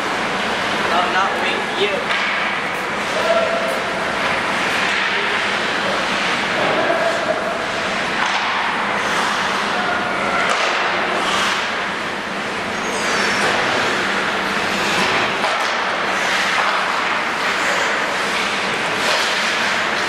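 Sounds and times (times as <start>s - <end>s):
skate blades scraping ice: 7.7s - 9.7s, 10.5s - 11.7s, 14.7s - 20.0s.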